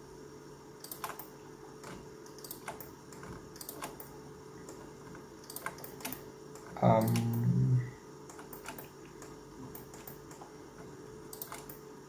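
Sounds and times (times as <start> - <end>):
faint steady hum: 0.0 - 12.0
keyboard and mouse clicking: 0.8 - 4.1, 5.4 - 7.4, 8.3 - 10.5, 11.3 - 11.8.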